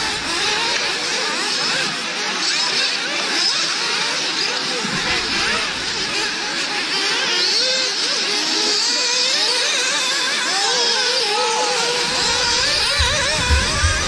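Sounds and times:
rc car engines whining: 0.0s - 14.0s
low thumps: 12.0s - 14.0s.

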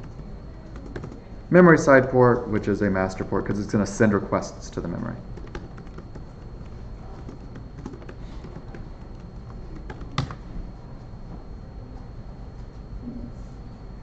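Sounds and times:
keyboard typing: 0.0s - 1.3s, 5.2s - 10.5s.

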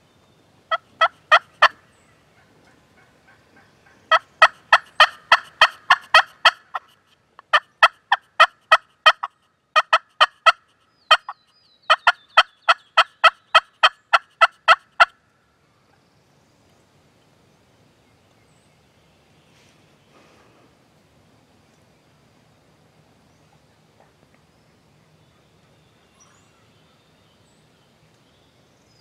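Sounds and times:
wild turkey yelping: 0.7s - 15.2s.

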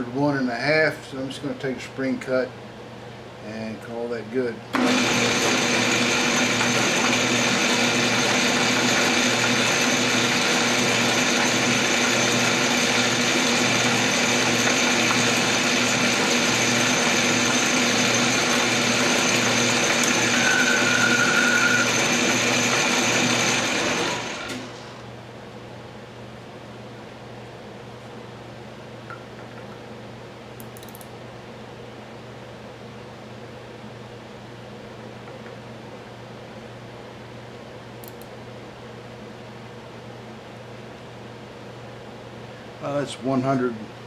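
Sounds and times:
metal lathe whining: 4.8s - 25.0s.

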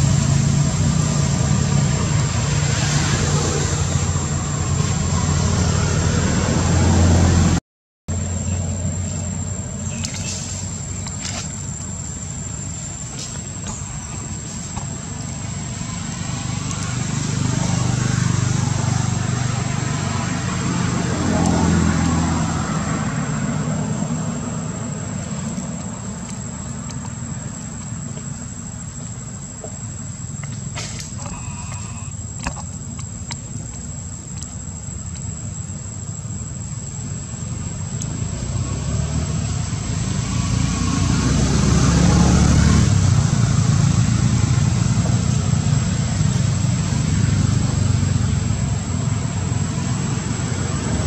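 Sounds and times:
motor vehicle engine rumble: 0.0s - 51.0s.

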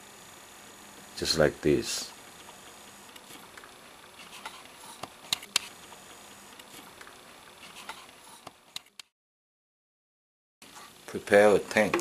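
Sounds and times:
steady background hiss: 10.7s - 12.0s.

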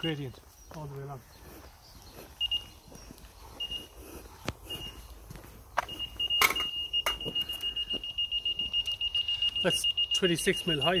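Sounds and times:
laser receiver beeping: 5.8s - 11.0s.

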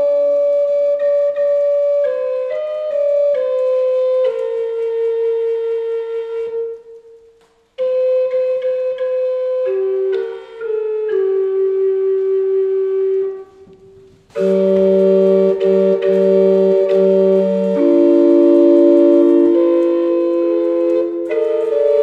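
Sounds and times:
organ playing sustained chords: 7.8s - 22.0s.

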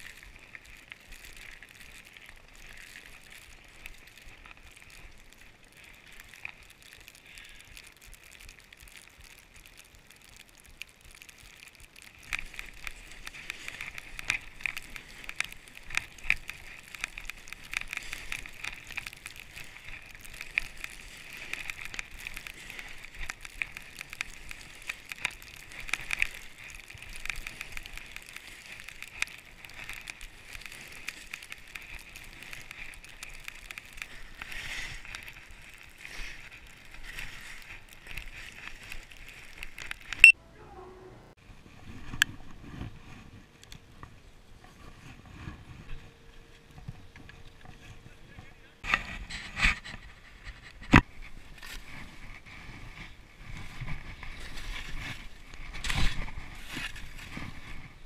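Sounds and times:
skis sliding over snow: 0.0s - 40.3s, 41.4s - 58.0s.

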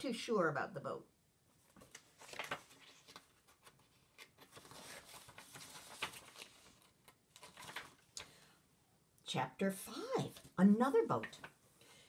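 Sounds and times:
paper pages rustling: 1.6s - 8.4s.

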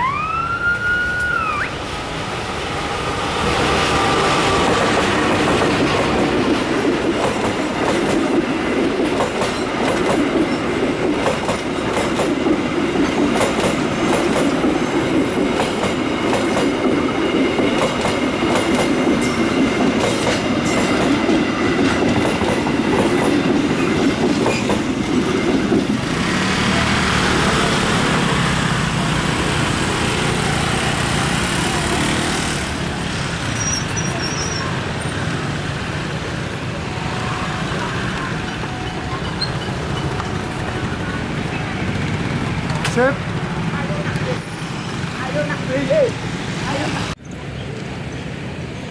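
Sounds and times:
train wheels clattering on rails: 3.4s - 36.7s.

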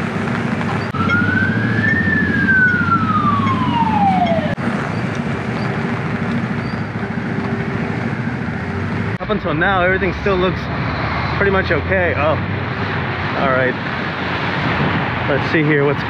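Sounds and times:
street traffic noise: 0.0s - 16.0s
siren wailing: 0.7s - 5.7s.

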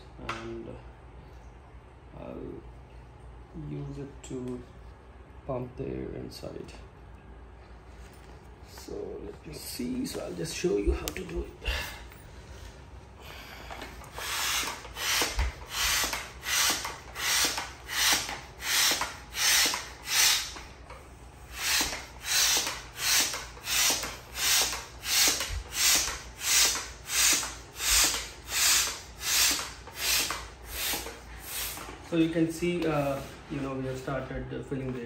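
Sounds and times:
hand air pump whooshing: 13.7s - 20.6s, 21.5s - 33.4s.

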